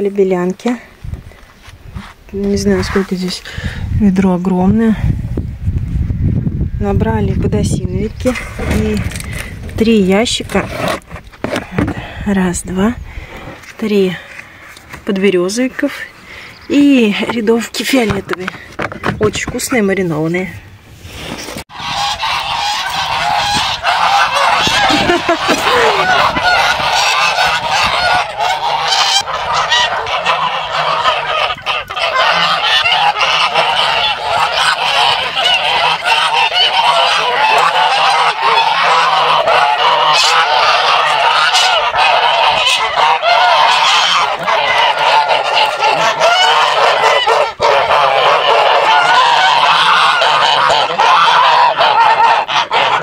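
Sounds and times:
geese honking: 21.7 - 53.0.

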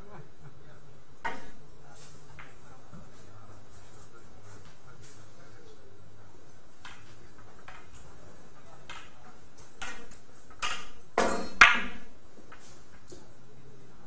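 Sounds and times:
billiard balls rolling: 1.2 - 13.3
billiard balls clicking: 6.7 - 8.2, 8.8 - 13.2.

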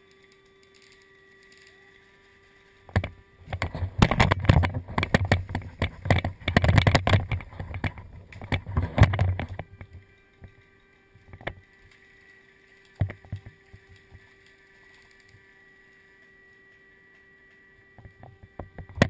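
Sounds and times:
rustling and knocking on microphone: 2.9 - 9.7.

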